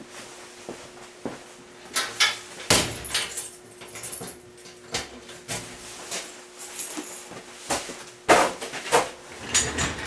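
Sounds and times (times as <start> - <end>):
rattles and knocks: 8.8 - 10.0
tool chest rolling on concrete: 9.2 - 10.0.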